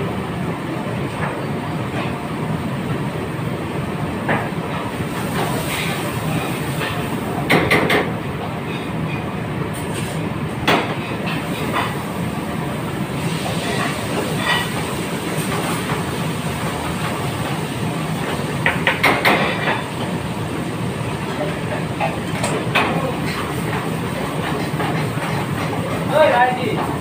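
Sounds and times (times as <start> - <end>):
kitchen roar with low hum: 0.0 - 27.0.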